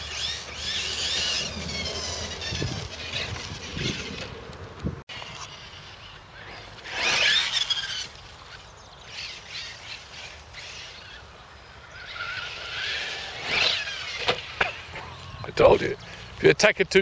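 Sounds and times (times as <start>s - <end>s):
electric motor whining: 0.0s - 8.2s.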